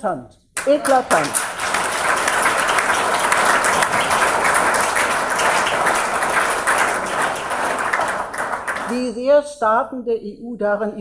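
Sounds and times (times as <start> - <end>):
audience applauding: 0.6 - 9.2.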